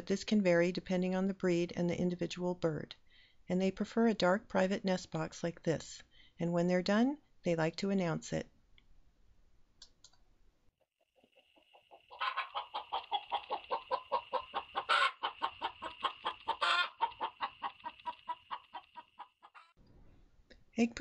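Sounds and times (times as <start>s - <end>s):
hen clucking: 11.1s - 19.8s
hen squawking: 12.0s - 19.7s.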